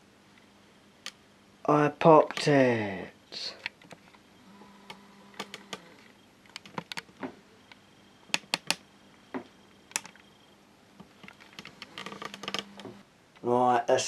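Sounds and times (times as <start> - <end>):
sharp clicks and light taps: 7.7 - 8.8.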